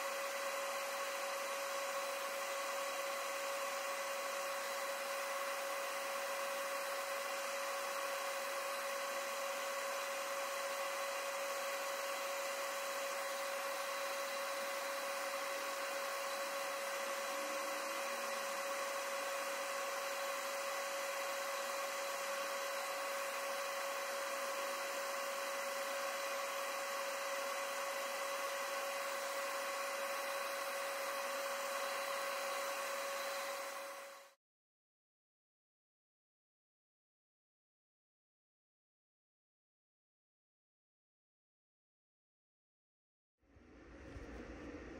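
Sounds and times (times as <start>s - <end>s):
machine whirring and humming: 43.5s - 44.9s.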